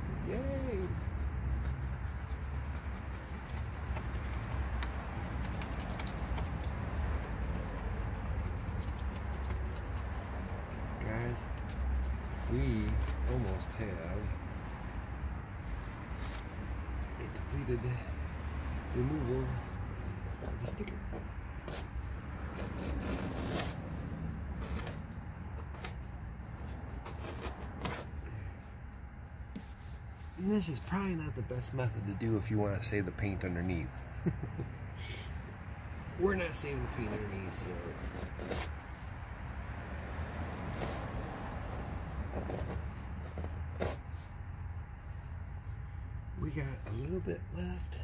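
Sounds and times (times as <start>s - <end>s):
scratchy rubbing: 0.6s - 14.0s, 21.6s - 24.0s, 26.6s - 28.2s, 36.5s - 39.0s, 40.6s - 41.2s, 42.3s - 44.3s.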